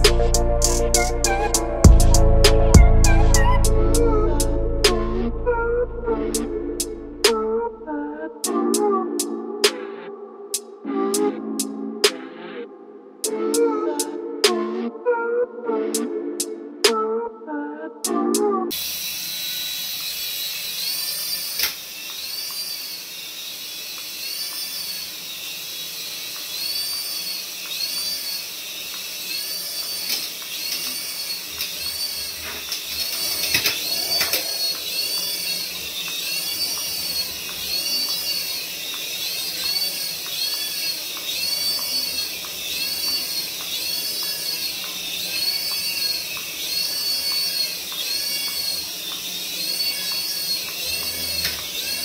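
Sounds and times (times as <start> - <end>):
toy helicopter motors whining: 0.0 - 2.1, 18.7 - 52.0.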